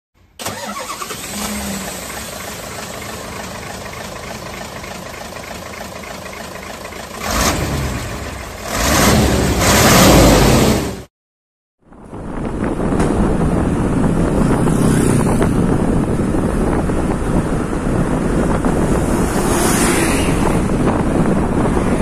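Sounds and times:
truck engine idling: 1.8 - 7.4.

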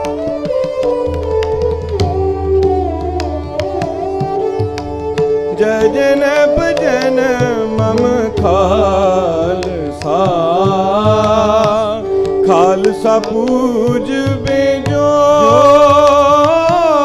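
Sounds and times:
bowed string melody: 0.0 - 17.0
tabla strokes: 0.0 - 17.0
people singing: 7.9 - 17.0.

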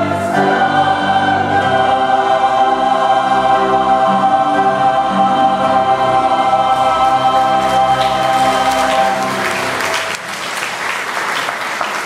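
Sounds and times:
choir singing a hymn: 0.0 - 10.3
applause: 7.1 - 12.0.

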